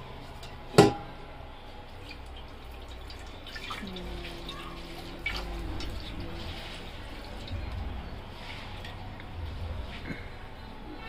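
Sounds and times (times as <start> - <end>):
water dripping and splashing: 1.9 - 9.0.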